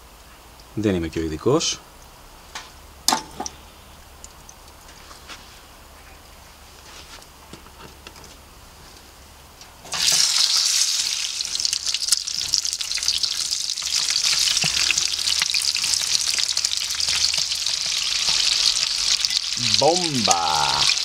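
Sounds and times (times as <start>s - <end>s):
butter crackling and spitting: 9.9s - 21.0s
steak sizzling in a pan: 9.9s - 21.0s.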